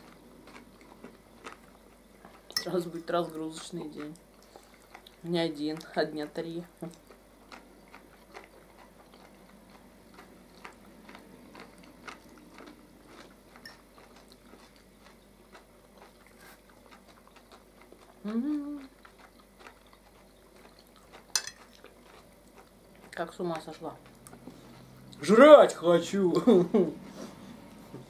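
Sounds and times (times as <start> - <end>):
soft chewing: 0.0 - 25.3
person humming: 18.2 - 19.0
cutlery clicking on plate: 21.3 - 21.8.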